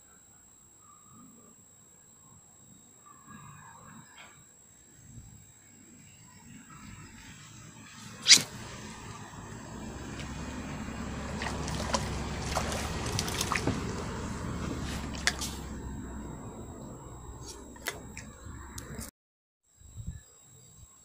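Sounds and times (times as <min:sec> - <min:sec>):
fish splashing in water: 0:08.0 - 0:18.4
sharp click: 0:08.2 - 0:08.5.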